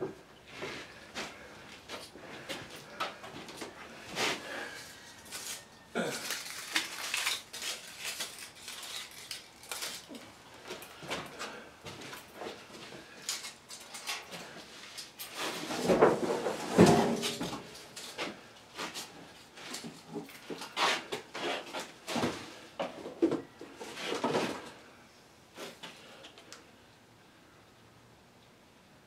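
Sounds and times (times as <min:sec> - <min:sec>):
objects clattering and knocking: 0:15.3 - 0:19.0.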